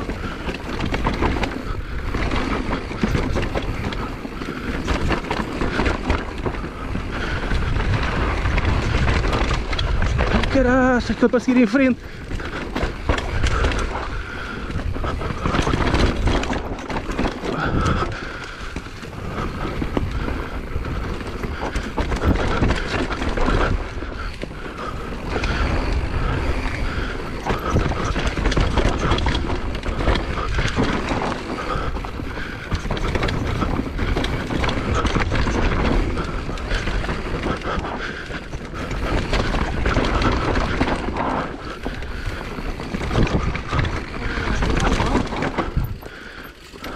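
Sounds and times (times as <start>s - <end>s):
bike knocking and rattling: 0.0s - 46.9s
bike tyres rolling over dirt: 0.0s - 46.9s
wind noise on microphone: 0.0s - 46.9s.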